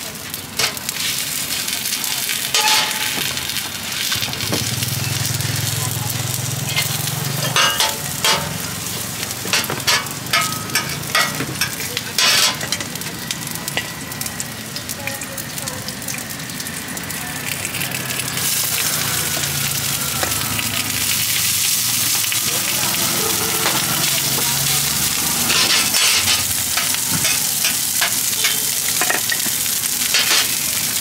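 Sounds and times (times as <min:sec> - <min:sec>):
hot oil sizzling in wok: 0:00.0 - 0:31.0
metal utensils clinking: 0:02.4 - 0:03.4, 0:06.6 - 0:08.8, 0:09.4 - 0:13.0, 0:23.3 - 0:30.6.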